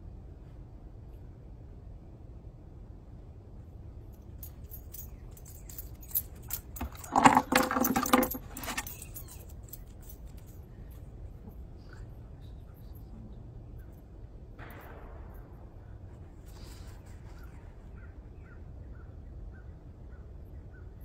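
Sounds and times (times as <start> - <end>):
metal jingling and clinking: 4.1 - 11.6.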